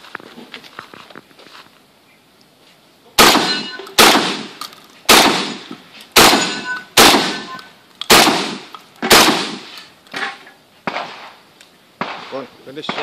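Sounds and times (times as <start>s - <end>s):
shotgun shots with ringing tail: 3.2s - 9.7s, 10.9s - 11.4s, 12.0s - 13.0s.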